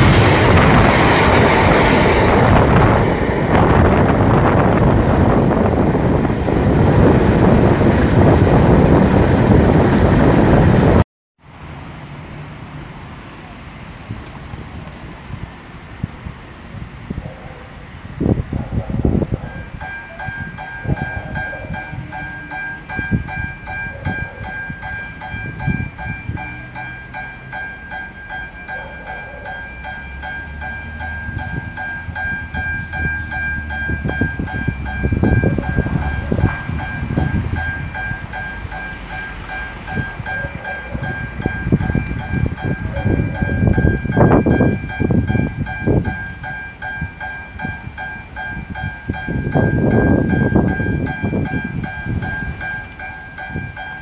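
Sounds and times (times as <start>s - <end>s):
low train rumbles: 0.0s - 54.0s
level crossing bells ringing: 19.5s - 54.0s.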